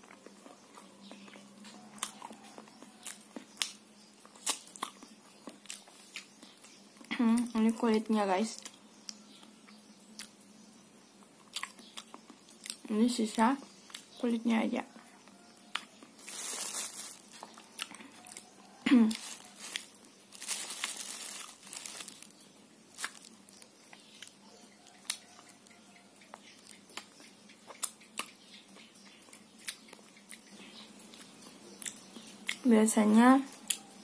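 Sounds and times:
chewing mouth sounds: 0.1s - 6.3s, 11.4s - 12.8s, 26.3s - 28.4s
plastic bag crinkling: 16.2s - 23.7s
soft cake being torn: 19.1s - 24.4s.

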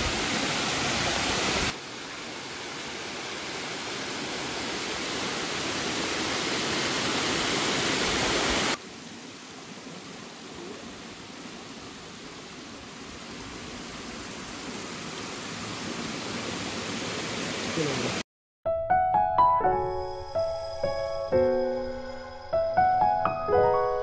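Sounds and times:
waterfall rushing: 0.0s - 18.2s.

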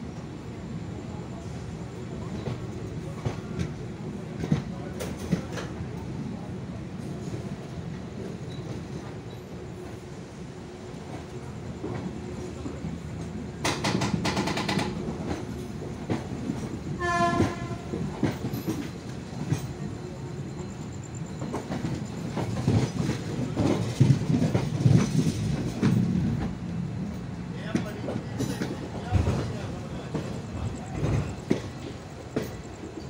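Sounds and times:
train rumbling: 0.0s - 33.0s
train horn blast: 17.0s - 18.0s.

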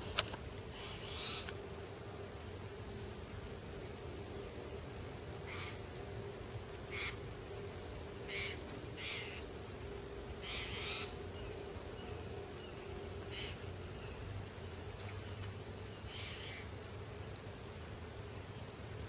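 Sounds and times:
faint low hum: 0.0s - 19.0s
bird buzzy mewing call: 0.4s - 1.7s, 4.4s - 14.2s, 16.0s - 16.8s.

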